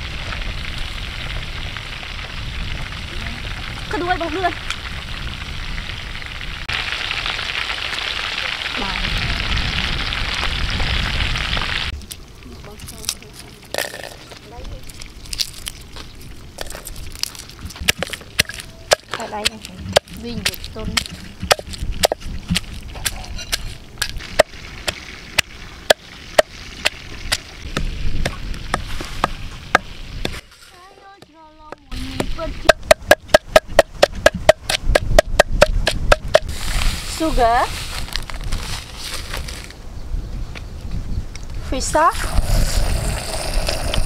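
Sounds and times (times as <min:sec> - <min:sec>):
meat sizzling in hot oil: 0:00.0 - 0:11.9, 0:22.8 - 0:30.3
pestle pounding in wooden mortar: 0:17.7 - 0:30.4, 0:31.2 - 0:36.5.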